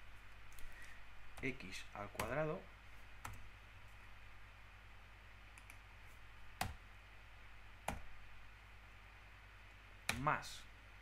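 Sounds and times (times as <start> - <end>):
faint low hum: 0.0 - 11.0
sharp computer clicks: 10.0 - 10.4.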